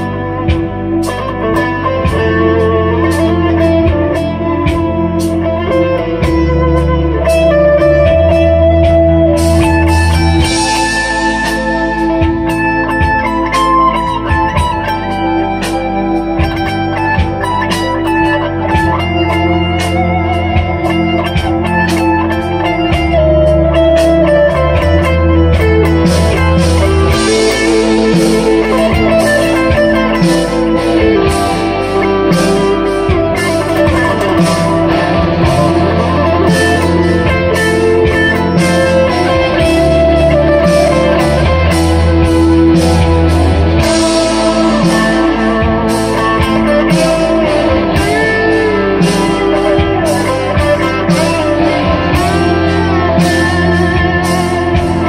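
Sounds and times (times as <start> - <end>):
electric guitar lead lines: 0.0 - 55.0
low bass notes: 0.0 - 55.0.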